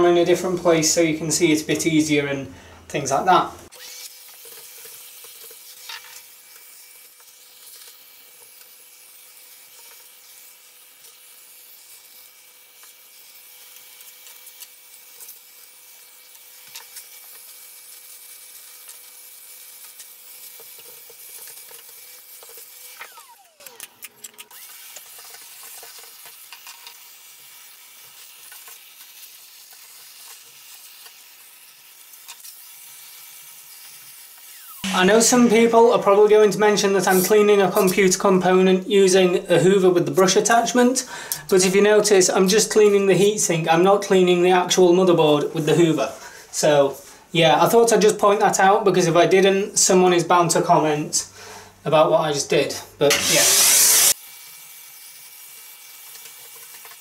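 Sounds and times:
vacuum cleaner running: 0:22.5 - 0:25.2, 0:34.4 - 0:37.4, 0:53.1 - 0:54.2.

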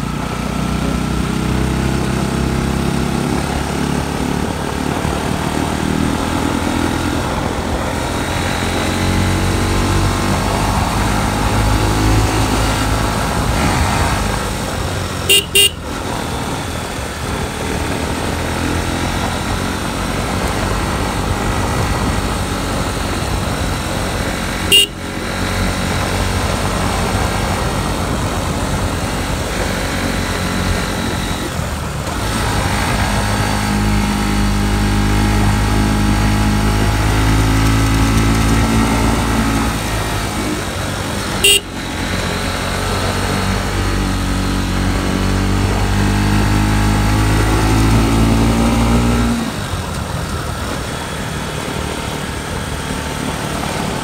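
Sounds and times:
motorcycle engine running: 0:00.0 - 0:54.0
horn toots: 0:15.3 - 0:16.2, 0:24.5 - 0:25.3, 0:41.2 - 0:42.2.

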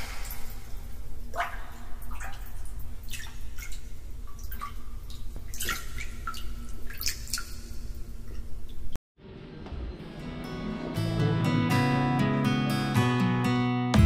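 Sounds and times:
water dripping and splashing: 0:00.0 - 0:08.9
acoustic guitar music: 0:09.5 - 0:14.0.

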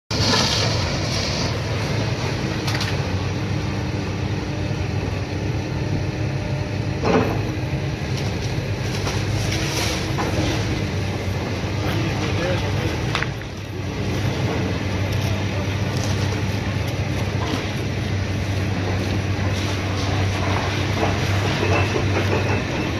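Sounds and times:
excavator diesel engine running: 0:00.1 - 0:22.9.

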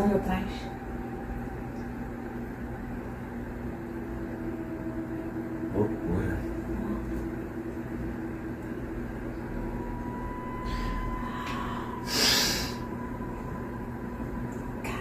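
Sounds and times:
steady low drone: 0:00.0 - 0:15.0
person blowing a puff of breath: 0:12.0 - 0:12.8.

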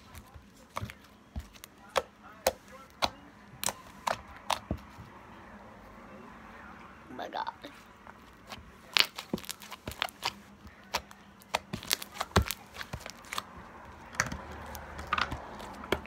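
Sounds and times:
foam bead slime crackling: 0:08.8 - 0:13.6.

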